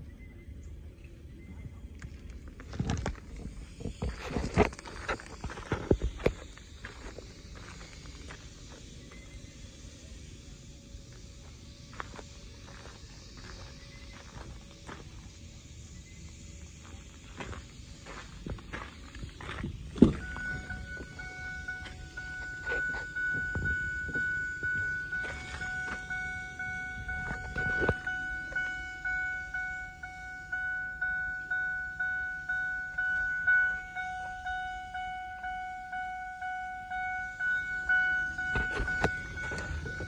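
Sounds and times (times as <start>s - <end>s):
car warning chime dinging: 20.0s - 40.0s.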